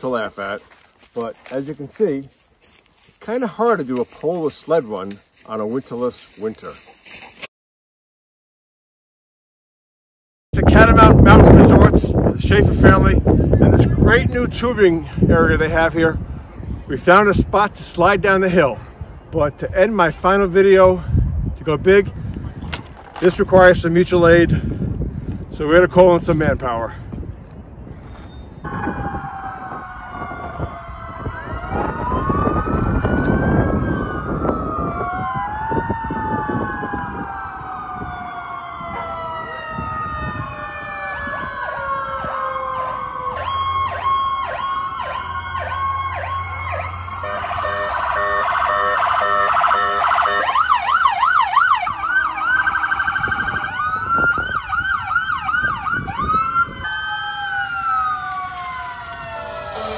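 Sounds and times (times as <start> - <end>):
emergency sirens wailing: 28.6 - 59.9.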